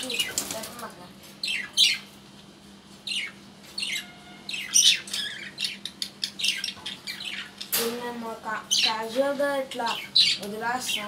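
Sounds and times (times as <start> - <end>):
budgerigars squawking: 3.1 - 7.7.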